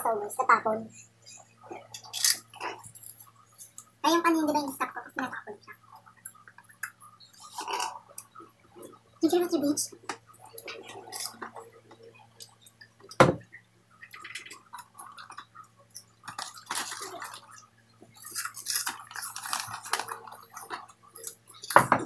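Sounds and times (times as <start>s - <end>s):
slurping through straws: 7.3s - 8.2s.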